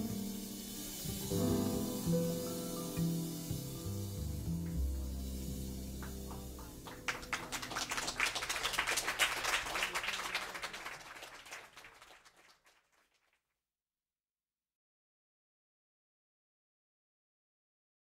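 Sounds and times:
audience applauding: 6.0s - 13.3s.

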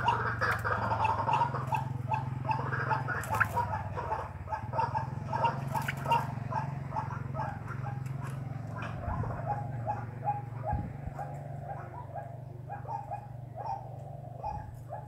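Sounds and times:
waterhen calling: 0.0s - 10.0s
constant low hum: 0.0s - 15.0s.

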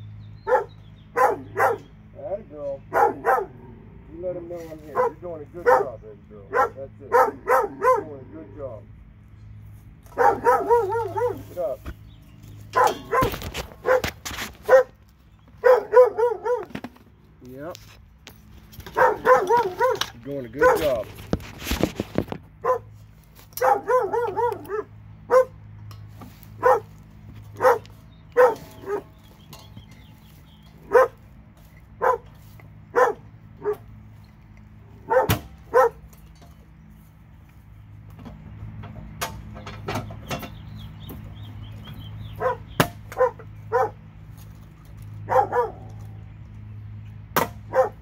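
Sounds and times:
dog barking: 0.4s - 1.9s, 2.9s - 3.6s, 4.9s - 8.2s, 10.1s - 11.5s, 12.8s - 14.1s, 14.7s - 15.0s, 15.6s - 16.7s, 19.0s - 20.0s, 20.6s - 21.0s, 22.6s - 22.9s, 23.6s - 25.6s, 26.6s - 26.9s, 27.6s - 29.1s, 30.9s - 31.2s, 32.0s - 32.3s, 32.9s - 33.8s, 35.0s - 36.0s, 42.4s - 44.0s, 45.2s - 45.9s, 47.7s - 48.0s
dog yipping: 0.4s - 1.9s, 2.9s - 3.5s, 5.0s - 5.9s, 6.5s - 8.1s, 10.2s - 11.5s, 12.8s - 14.1s, 14.7s - 15.0s, 15.6s - 16.7s, 19.0s - 20.0s, 22.6s - 22.9s, 23.6s - 25.6s, 26.6s - 26.9s, 27.6s - 27.8s, 28.4s - 29.1s, 30.9s - 31.2s, 32.0s - 32.2s, 32.9s - 33.8s, 35.1s - 36.0s, 42.4s - 44.0s, 45.3s - 45.9s, 47.7s - 48.0s.

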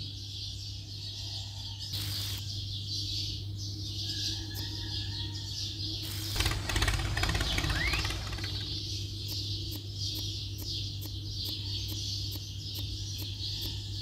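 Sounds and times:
birds chirping: 0.0s - 14.0s
rapid rattling: 6.0s - 9.0s.

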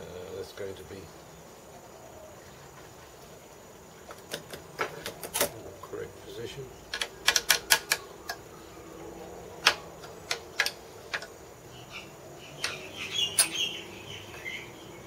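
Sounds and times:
sharp metallic clicks and taps: 6.9s - 8.4s, 9.6s - 11.4s, 12.6s - 13.6s.

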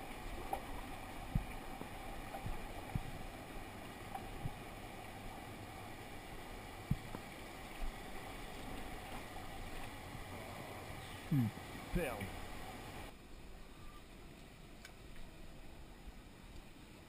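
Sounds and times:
stream water running: 0.0s - 17.0s
dull low knocks: 2.4s - 3.2s, 6.8s - 7.2s.

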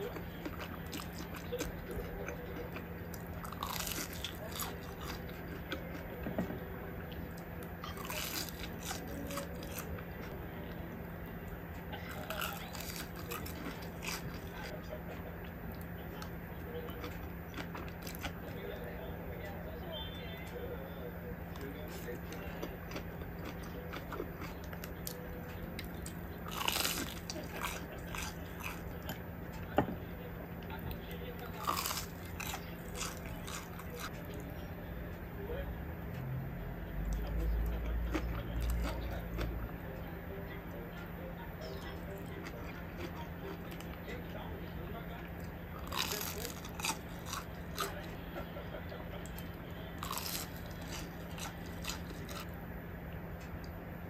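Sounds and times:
crunchy chewing: 0.0s - 6.5s, 7.1s - 18.9s, 21.5s - 29.3s, 30.6s - 34.5s, 37.1s - 39.8s, 41.7s - 44.4s, 45.0s - 52.7s
low steady hum: 0.0s - 54.0s.

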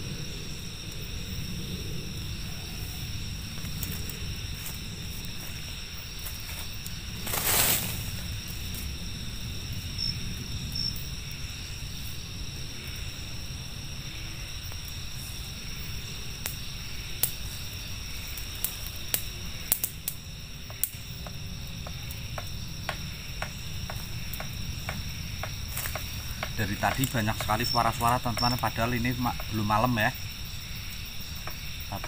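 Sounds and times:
insects chirping shrilly: 0.0s - 32.0s.

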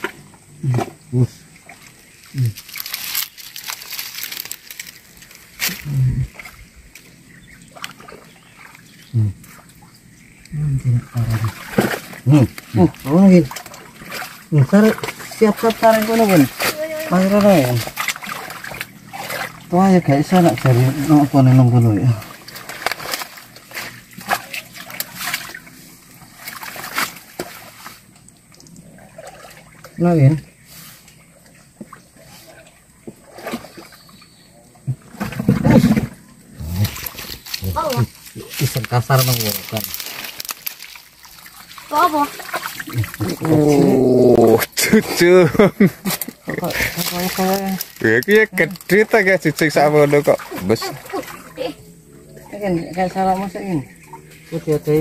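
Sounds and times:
hands squelching in wet mud: 1.6s - 6.6s, 7.6s - 30.0s, 36.6s - 51.7s
short low grunts: 5.7s - 6.5s, 34.8s - 37.8s, 42.9s - 45.2s.

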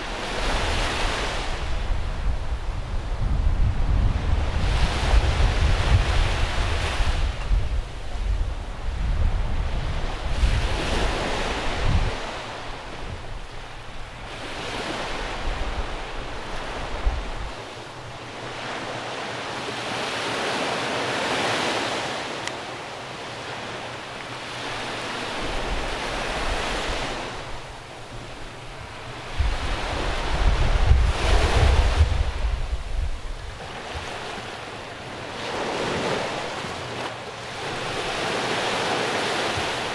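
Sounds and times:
small waves breaking on sand: 0.0s - 3.2s, 3.8s - 39.9s.

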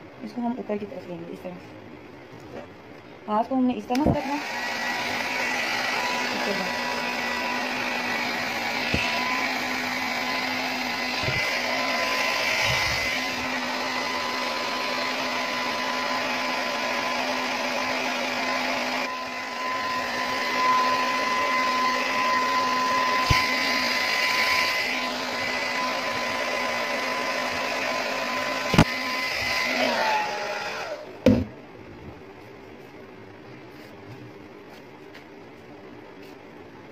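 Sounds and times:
hair dryer running: 3.9s - 31.5s.

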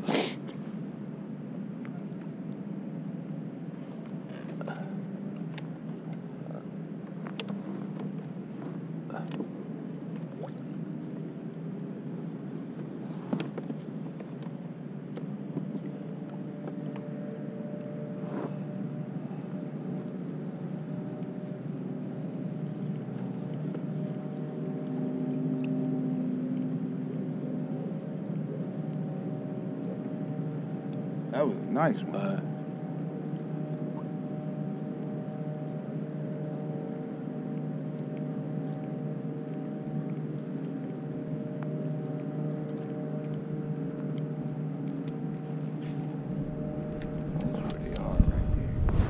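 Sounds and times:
small motor drone: 14.6s - 49.0s
electric motor humming: 40.3s - 49.0s.

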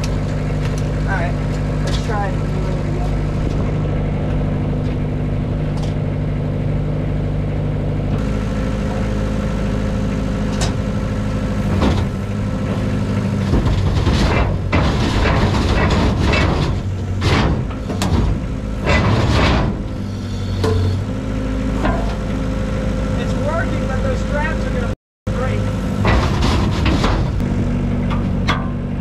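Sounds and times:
excavator engine running: 0.0s - 29.0s.

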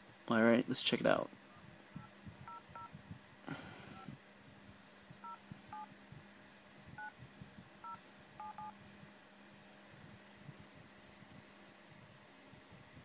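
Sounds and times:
touch-tone keypad beeps: 2.5s - 2.9s, 7.8s - 8.7s.

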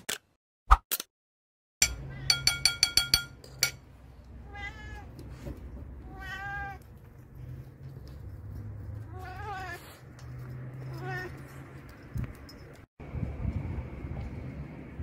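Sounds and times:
cat meowing: 4.4s - 5.2s, 6.0s - 6.9s, 9.1s - 10.0s, 10.8s - 11.5s
metallic clinks: 10.8s - 12.9s.

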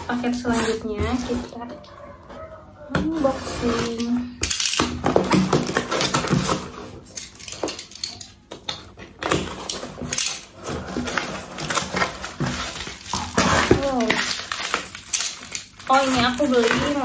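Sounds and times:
packing tape ripping: 3.6s - 8.3s, 9.2s - 17.0s.

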